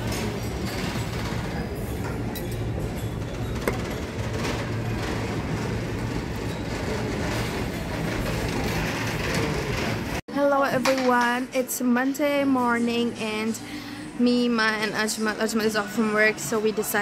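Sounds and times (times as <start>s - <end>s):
restaurant murmur: 0.0s - 10.2s.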